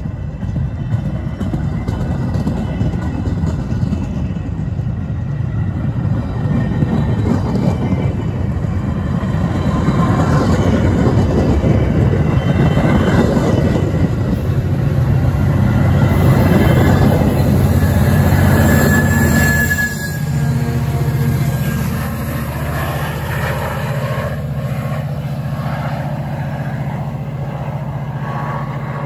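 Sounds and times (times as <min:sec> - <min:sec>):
train wheels rumbling on rails: 0:00.0 - 0:29.0.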